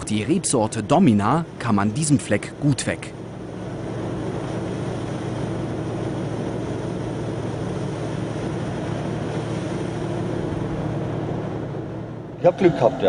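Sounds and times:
harvester engine running: 0:00.0 - 0:13.0.

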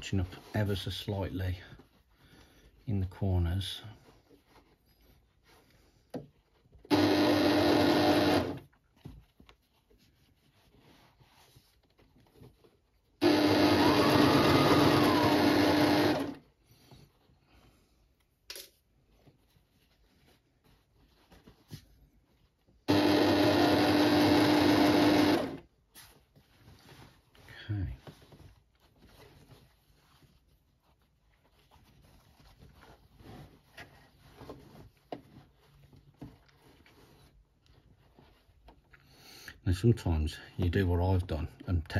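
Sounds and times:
electric sewing machine stitching: 0:06.9 - 0:08.6, 0:13.2 - 0:16.4, 0:22.9 - 0:25.6.

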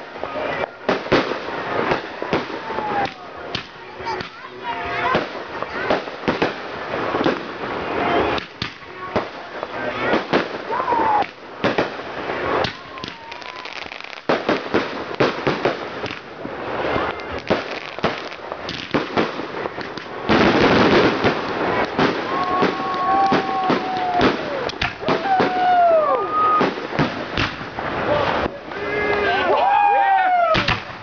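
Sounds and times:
fireworks bangs and crackles: 0:00.0 - 0:31.0
fireworks launching hiss: 0:05.0 - 0:29.2
fireworks whistles: 0:10.1 - 0:28.0.

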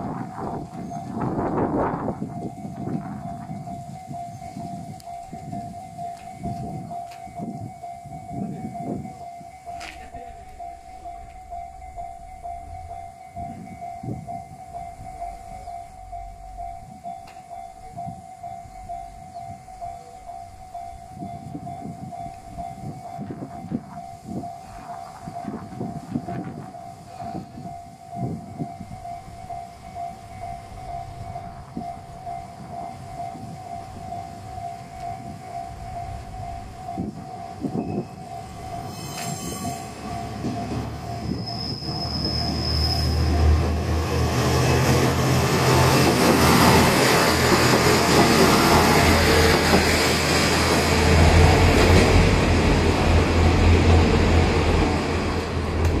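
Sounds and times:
level crossing warning bell: 0:00.0 - 0:56.0
low rumbling: 0:07.6 - 0:38.8.

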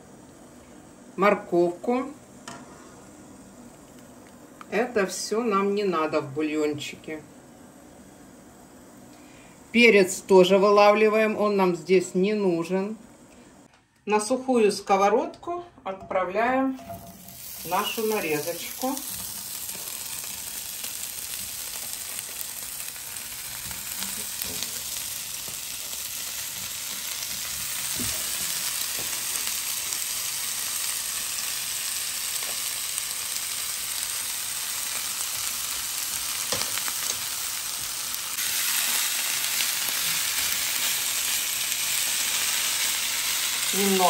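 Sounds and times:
meat sizzling in a frying pan: 0:16.8 - 0:44.0.

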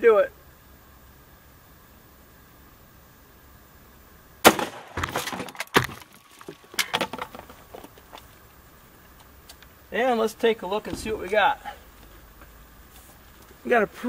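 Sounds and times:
rifle shot: 0:04.4 - 0:05.2
boards clattering down: 0:04.5 - 0:08.3.

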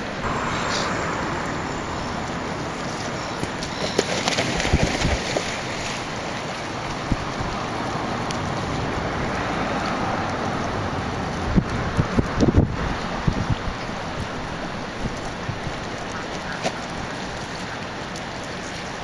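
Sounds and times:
wind buffeting microphone: 0:00.0 - 0:05.7, 0:06.9 - 0:16.3
lake water lapping: 0:00.0 - 0:19.0.

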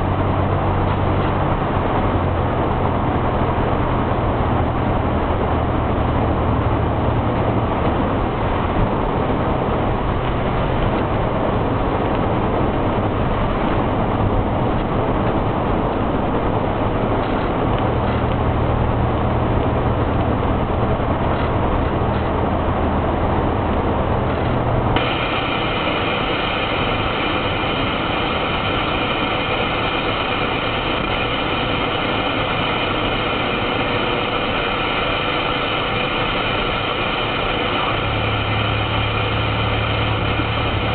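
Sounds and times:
car road and engine noise: 0:00.0 - 0:40.9
steady high tones: 0:25.0 - 0:40.9.

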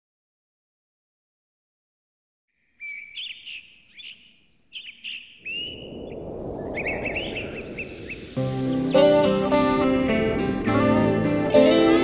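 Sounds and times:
outdoor background noise: 0:02.5 - 0:09.1
small birds chirping: 0:02.5 - 0:10.4.

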